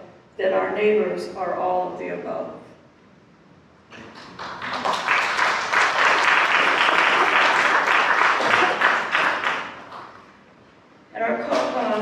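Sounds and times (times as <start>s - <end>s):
congregation applauding: 4.0s - 10.3s.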